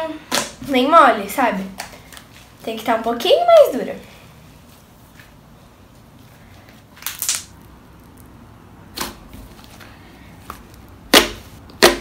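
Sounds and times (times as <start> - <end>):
trapped air popping in slime: 7.0 - 7.6.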